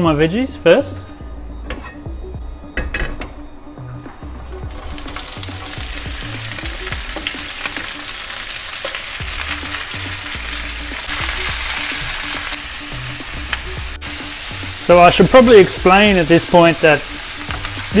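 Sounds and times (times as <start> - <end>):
vegetables sizzling in hot oil: 4.6 - 18.0.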